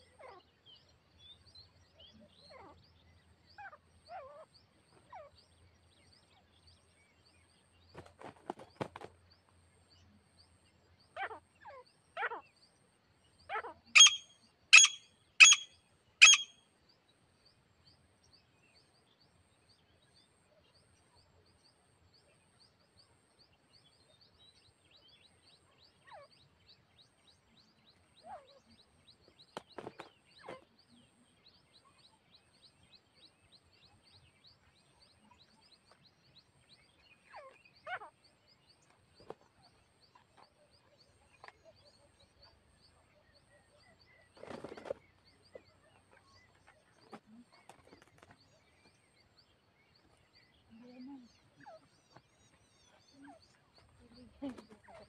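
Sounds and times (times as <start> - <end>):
bird ringing calls: 13.5 - 16.6.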